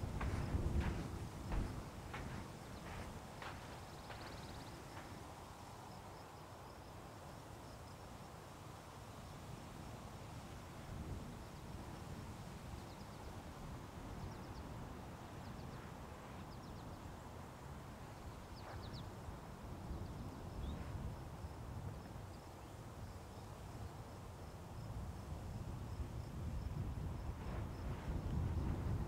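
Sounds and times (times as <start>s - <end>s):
footsteps in sand: 0.0s - 6.0s, 18.0s - 19.4s
wind rumble on microphone: 0.0s - 6.8s, 9.2s - 29.0s.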